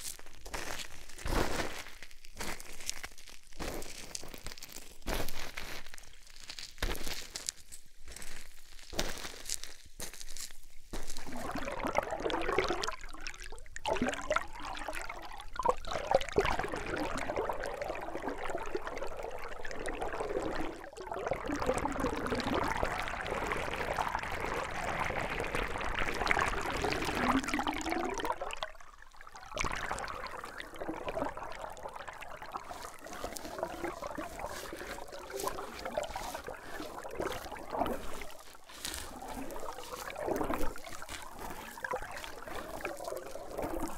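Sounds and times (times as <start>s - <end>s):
underwater creek bubbling: 11.0s - 43.9s.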